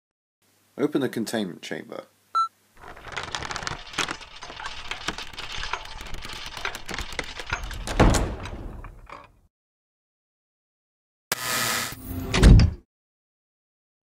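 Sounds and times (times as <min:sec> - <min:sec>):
heavy door crackling and clattering: 0:02.8 - 0:09.4
heavy low thud of door shutting: 0:07.6 - 0:09.1.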